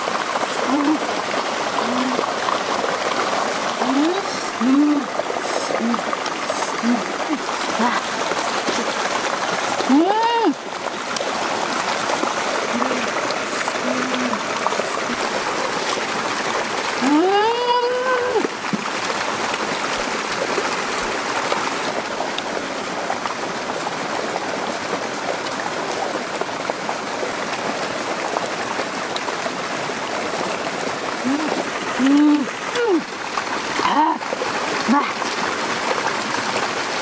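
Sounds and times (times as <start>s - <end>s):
stream running: 0.0s - 37.0s
woman humming: 0.6s - 1.0s, 1.8s - 2.3s, 3.8s - 8.0s, 12.7s - 15.3s, 31.2s - 33.1s.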